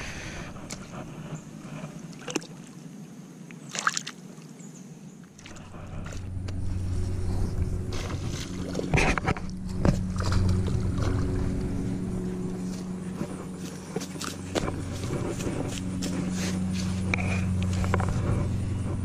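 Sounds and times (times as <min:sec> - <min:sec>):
motor humming: 0:05.4 - 0:19.0.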